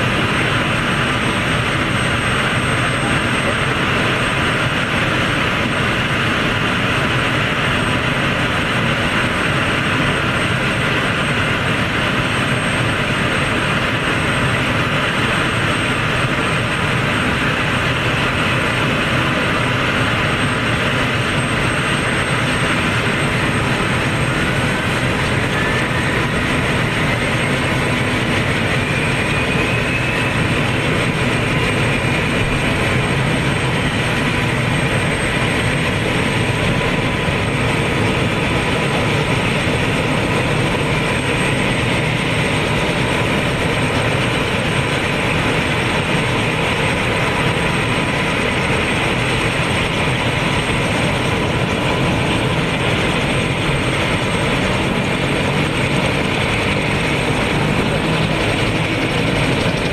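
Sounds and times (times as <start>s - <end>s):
helicopter idling: 0.0s - 59.9s
steady whining tones: 0.0s - 59.9s.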